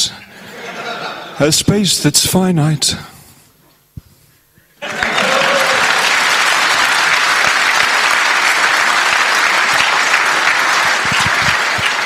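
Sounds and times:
crowd clapping: 0:04.8 - 0:12.0.

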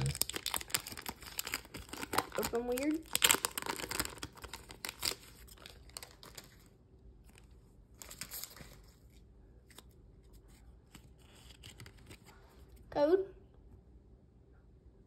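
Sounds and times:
foil wrapper crinkling: 0:00.0 - 0:09.9
cards being handled: 0:07.3 - 0:12.8.

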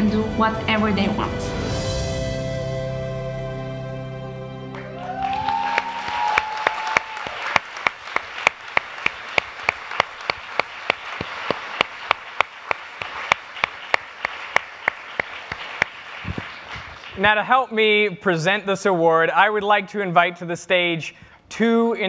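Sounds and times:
audience applauding and cheering: 0:04.6 - 0:17.2
close sharp hand claps: 0:04.8 - 0:17.2.

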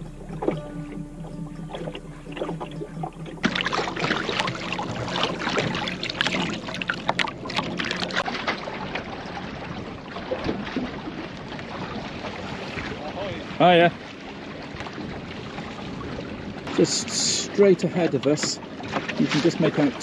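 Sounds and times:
faint steady hum: 0:00.0 - 0:10.2
water splashing along hull: 0:00.0 - 0:20.0.

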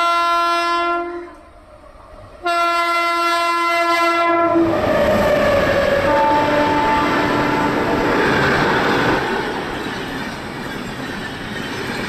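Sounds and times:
train horn blast: 0:00.0 - 0:01.5, 0:02.4 - 0:05.1, 0:05.9 - 0:08.0
train passing with wheel noise: 0:01.0 - 0:12.0.

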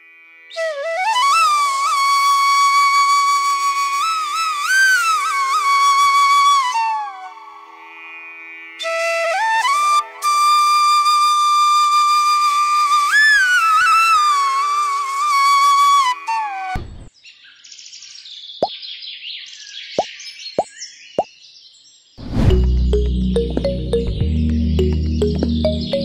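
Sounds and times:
whistle-like melody: 0:08.8 - 0:16.8, 0:22.5 - 0:26.0
short rising blips: 0:22.2 - 0:26.0
high chirping: 0:22.8 - 0:26.0.

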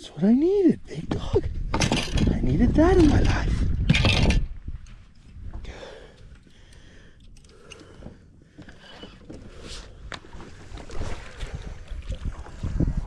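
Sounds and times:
wind rumbling on microphone: 0:00.8 - 0:06.5, 0:09.1 - 0:13.0.

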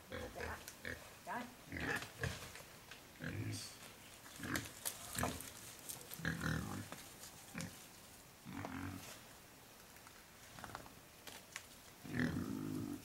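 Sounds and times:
rustling: 0:03.7 - 0:13.0.

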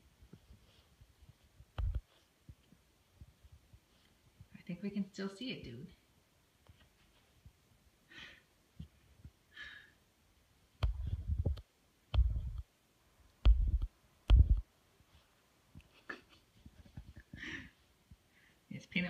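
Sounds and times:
dull thumps into cushions: 0:13.5 - 0:14.6.

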